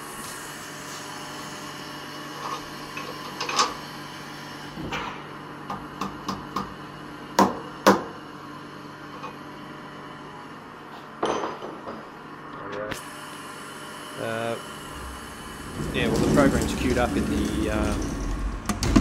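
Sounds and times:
machine hum: 12.0s - 19.0s.

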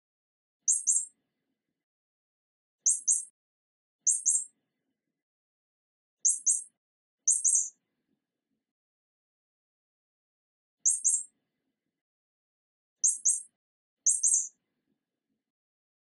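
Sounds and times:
mouse squeaks: 0.6s - 1.2s, 2.8s - 3.3s, 4.0s - 4.6s, 6.2s - 7.8s, 10.8s - 11.3s, 13.0s - 14.5s.

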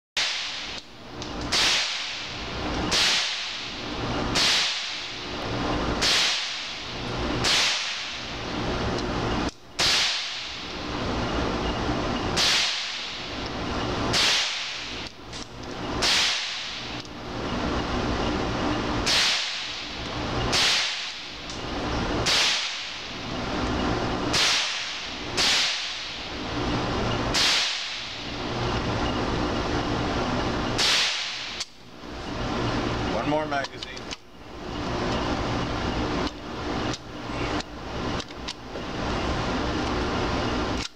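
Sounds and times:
steady low hum: 0.2s - 40.9s.

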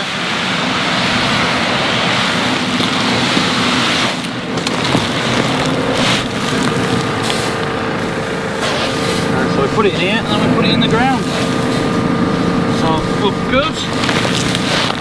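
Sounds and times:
tractor engine running: 0.0s - 15.0s
seed pouring into hopper: 0.1s - 9.6s, 13.7s - 15.0s.

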